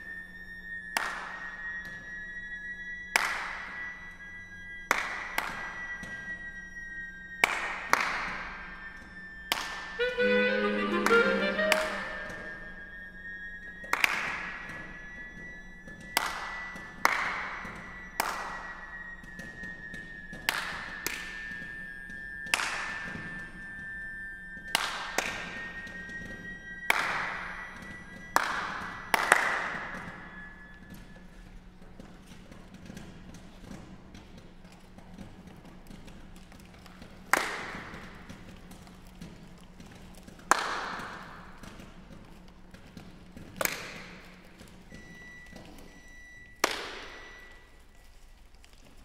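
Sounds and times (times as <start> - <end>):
held high electronic tones: 10.0 - 12.9.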